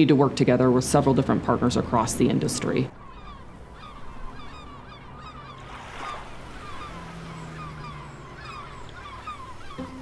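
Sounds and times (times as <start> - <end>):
flock of birds calling: 1.8 - 10.0.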